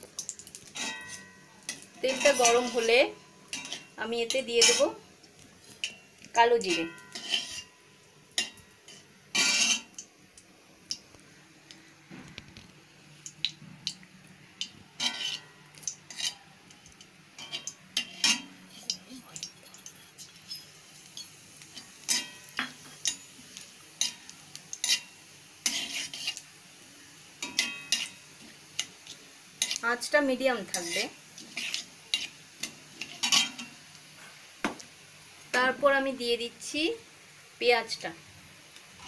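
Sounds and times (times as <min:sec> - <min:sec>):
metal spatula scraping a pan: 0:00.7 - 0:05.0, 0:05.7 - 0:07.8, 0:08.4 - 0:10.0, 0:15.0 - 0:16.5, 0:17.4 - 0:19.0, 0:19.6 - 0:23.4, 0:24.0 - 0:26.4, 0:27.4 - 0:29.0, 0:29.6 - 0:33.8
steel bowl clinks: 0:00.8 - 0:01.5, 0:06.6 - 0:07.8.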